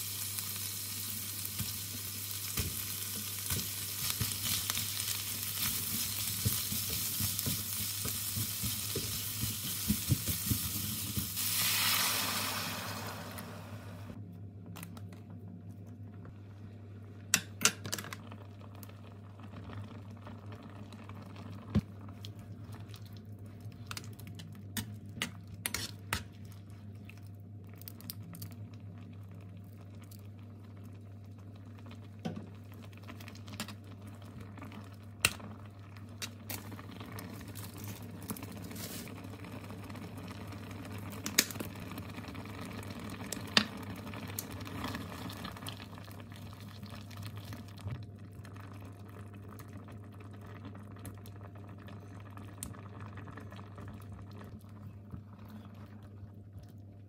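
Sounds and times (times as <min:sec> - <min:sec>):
sauce simmering in frying pan: 0:00.0 - 0:14.2, 0:26.7 - 0:57.0.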